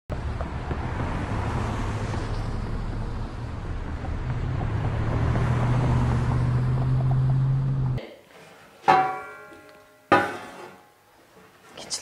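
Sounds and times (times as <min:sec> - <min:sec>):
cars passing: 0:00.1 - 0:08.0
low engine hum: 0:00.1 - 0:08.0.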